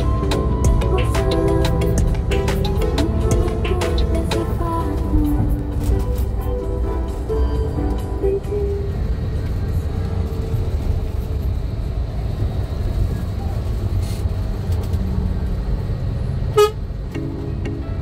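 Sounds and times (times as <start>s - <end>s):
vehicle rumbling on road: 0.0s - 18.0s
car horn toot: 16.5s - 16.9s.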